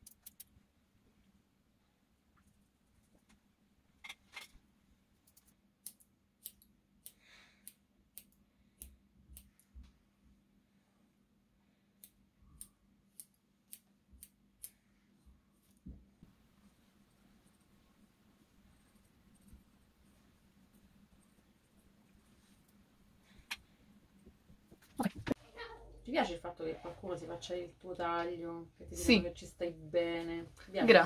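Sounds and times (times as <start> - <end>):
faint steady hum: 0.0 - 31.0
scissors snipping hair: 5.2 - 9.7, 12.0 - 14.8.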